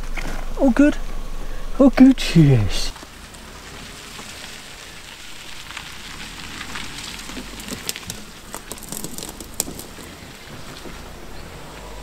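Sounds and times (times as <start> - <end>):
engine rumble: 0.0 - 12.0
tyres crackling on gravel: 0.0 - 12.0
stones popping under wheels: 2.9 - 11.8.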